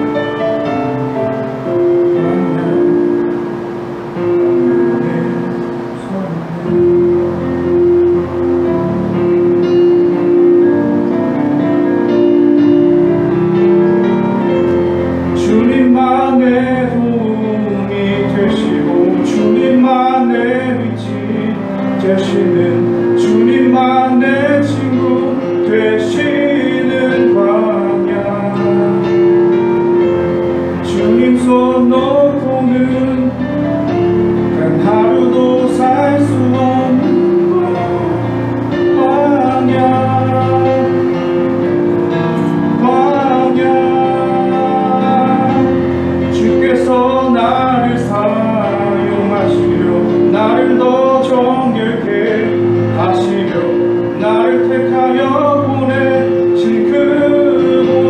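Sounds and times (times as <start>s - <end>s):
held instrumental chords: 0.0s - 58.0s
man singing worship song: 2.0s - 3.5s, 4.2s - 7.4s, 14.6s - 41.8s, 42.4s - 58.0s.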